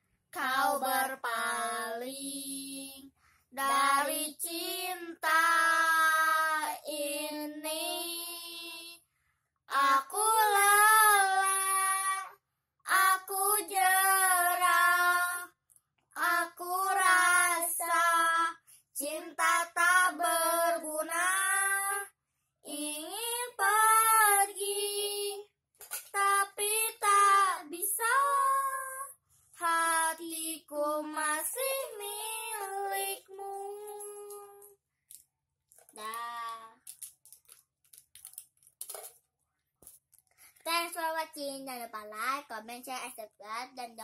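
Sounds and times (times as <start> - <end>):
girls singing together: 0.4 - 9.0, 9.7 - 15.6, 16.2 - 22.1, 22.7 - 25.5, 26.1 - 34.6.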